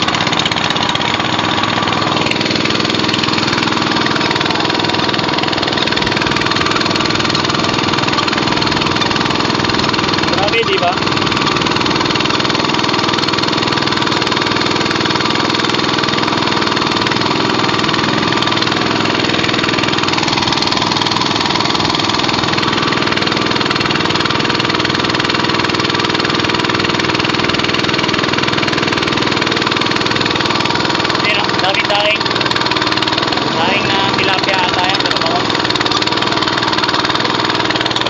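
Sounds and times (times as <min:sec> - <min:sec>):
small boat engine running: 0:00.0 - 0:38.0.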